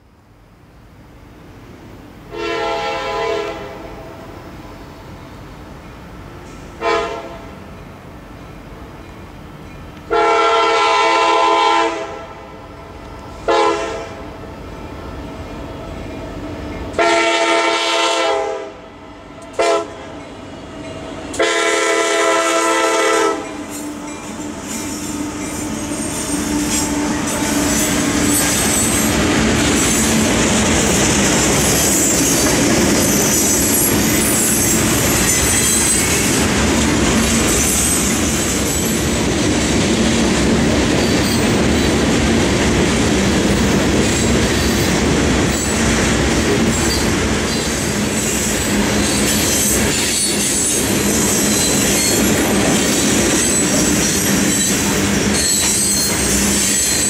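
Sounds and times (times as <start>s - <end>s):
train wheels rumbling on rails: 1.2s - 57.0s
high-pitched wheel squeal: 31.8s - 36.4s, 46.8s - 52.4s, 53.0s - 57.0s.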